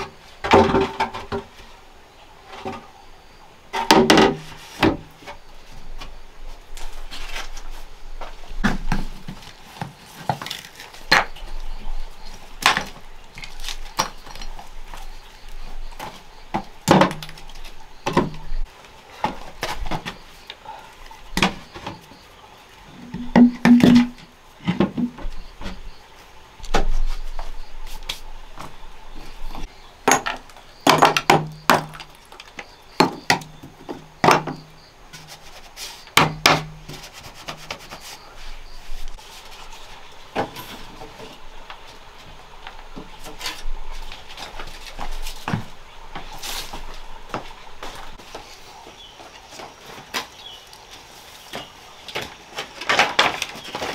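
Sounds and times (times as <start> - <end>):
stones clacking together: 30.0 - 34.6.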